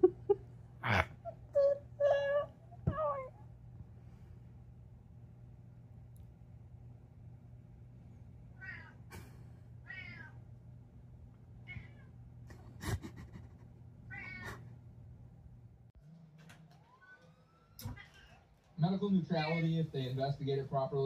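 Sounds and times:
steady low hum: 0:00.0 - 0:16.0
cat meowing: 0:08.6 - 0:09.0, 0:09.8 - 0:10.4, 0:11.6 - 0:12.1, 0:14.1 - 0:14.6.

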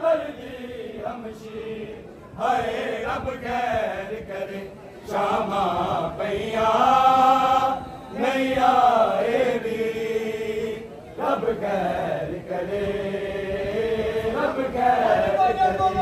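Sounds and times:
man chanting a mourning lament: 0:14.4 - 0:16.0.

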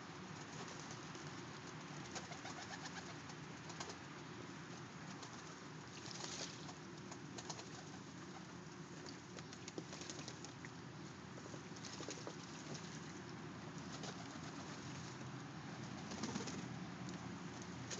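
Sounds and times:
wing flicks: 0:16.0 - 0:16.6.

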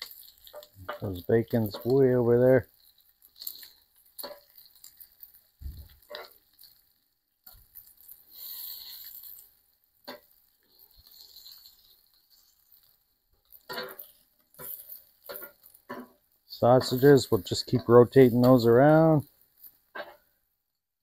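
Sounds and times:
bacon sizzling: 0:00.0 - 0:20.9
metal tongs clicking on grill: 0:01.6 - 0:02.2, 0:03.3 - 0:05.4, 0:13.5 - 0:19.0.

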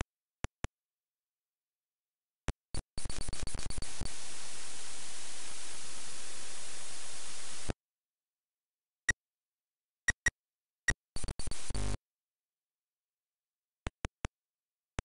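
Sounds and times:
tape loading pulses and hiss: 0:02.8 - 0:07.8.

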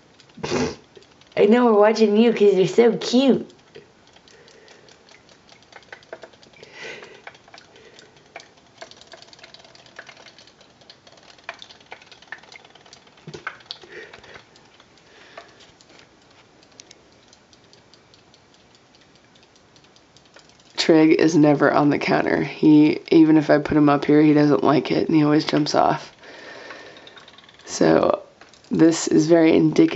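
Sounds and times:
robotic fish toys clicking: 0:03.1 - 0:21.2, 0:25.4 - 0:28.8.

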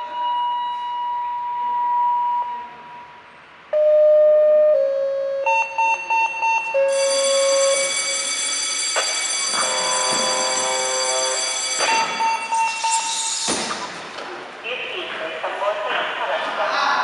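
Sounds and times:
electronic alarm tones: 0:03.7 - 0:13.9
quick beeps: 0:05.5 - 0:07.0, 0:11.8 - 0:14.0.

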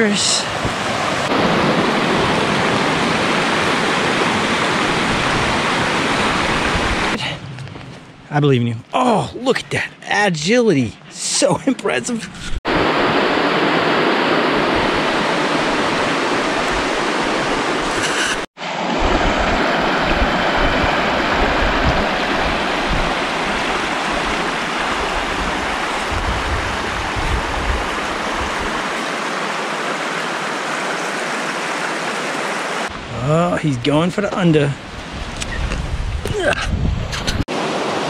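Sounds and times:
stream rushing over rocks: 0:00.0 - 0:07.2, 0:12.7 - 0:33.3, 0:37.5 - 0:38.0.

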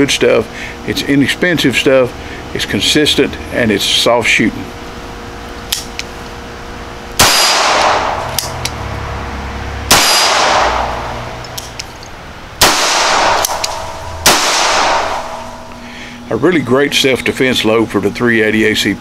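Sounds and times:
pistol shots ringing: 0:07.2 - 0:08.6, 0:09.9 - 0:11.2, 0:12.6 - 0:15.7.

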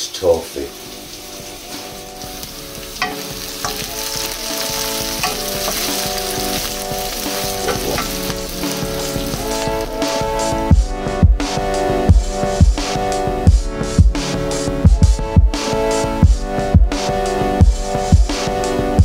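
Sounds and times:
vegetables sizzling in hot oil: 0:00.0 - 0:10.6
wooden spatula scraping wok: 0:00.2 - 0:09.9.

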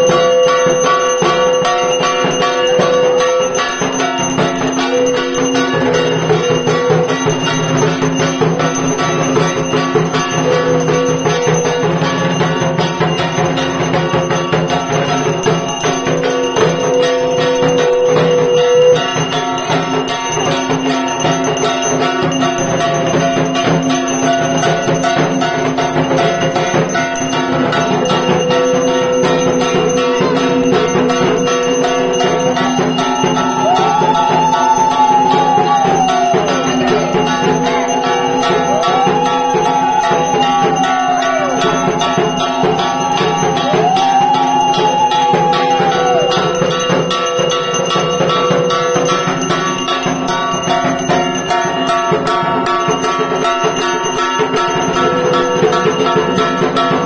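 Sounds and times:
bell ringing continuously: 0:00.0 - 0:57.0
music: 0:00.0 - 0:57.0.

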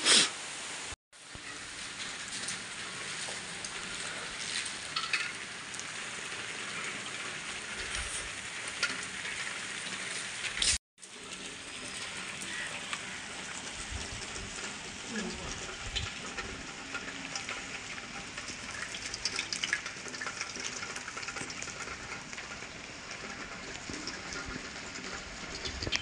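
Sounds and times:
rain falling: 0:00.0 - 0:26.0.

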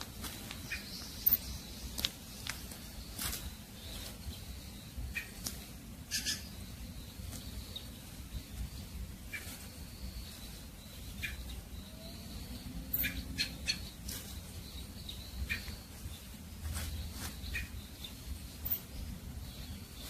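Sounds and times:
high-pitched squeaks or rustles: 0:12.9 - 0:14.4.

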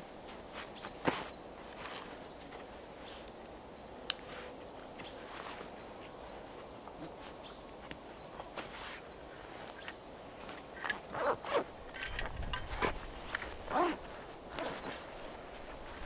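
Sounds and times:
small birds chirping: 0:00.0 - 0:16.0
gear rustling: 0:10.4 - 0:16.0.

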